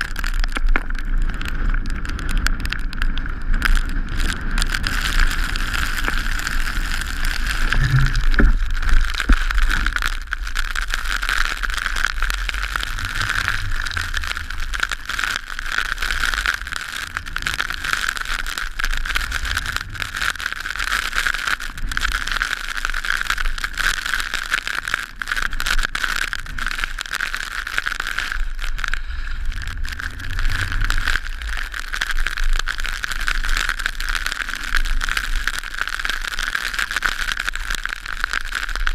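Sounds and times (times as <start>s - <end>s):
wind noise: 0.0s - 22.6s, 26.4s - 33.8s
skis hissing over snow: 3.1s - 15.1s, 26.4s - 32.6s.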